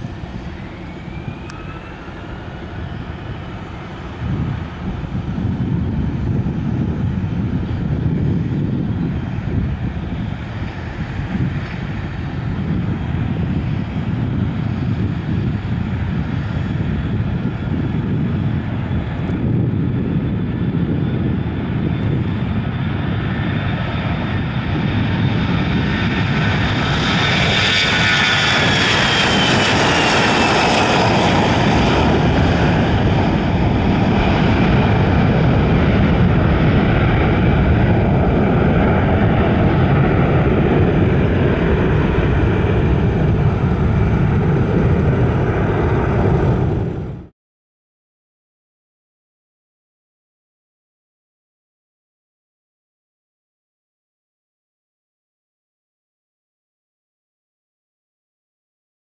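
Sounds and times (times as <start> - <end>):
jet fan whine falling in pitch: 0.0 - 6.6
jet engines low rumble: 0.0 - 47.3.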